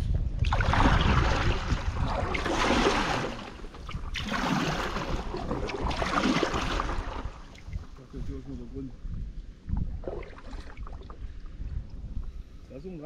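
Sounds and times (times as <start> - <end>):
wind on microphone: 0.0 - 13.0
paddle splashing through water: 0.4 - 8.0, 9.8 - 11.4.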